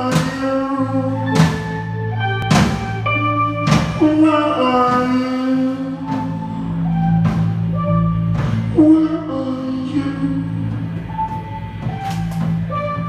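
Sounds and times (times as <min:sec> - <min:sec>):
bass line: 0:00.0 - 0:13.0
electric guitar chords: 0:00.0 - 0:13.0
live rock band playing: 0:00.0 - 0:13.0
drum kit hits: 0:01.4 - 0:05.3, 0:07.2 - 0:08.8.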